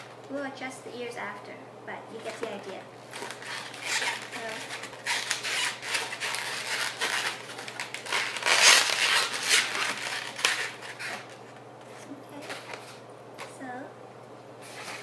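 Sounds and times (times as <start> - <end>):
rubber balloons squeaking scratchily: 3.1 - 11.4.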